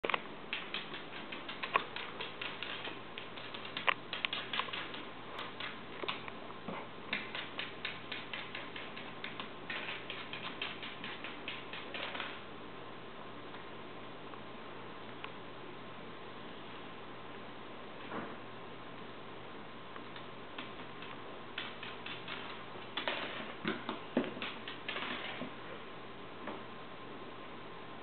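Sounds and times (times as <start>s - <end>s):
dog claws clicking on wooden floor: 0.5s - 6.3s, 7.1s - 12.4s, 20.2s - 25.5s.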